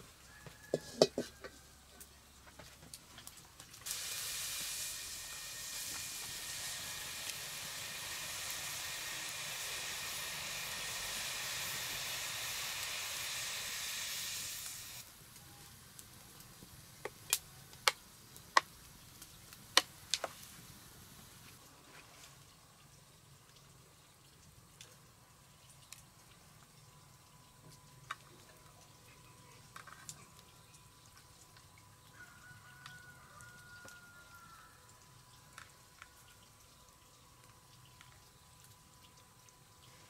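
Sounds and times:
food sizzling in a pan: 0.4s - 1.4s, 3.8s - 15.2s.

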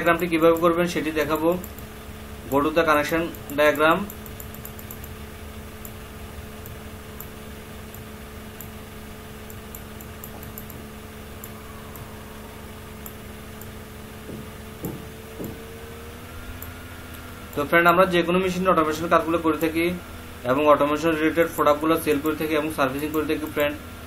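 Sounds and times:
low electrical hum: 0.0s - 24.0s
mouse scroll wheel ticking: 0.4s - 1.9s, 3.3s - 5.2s, 9.4s - 10.8s.

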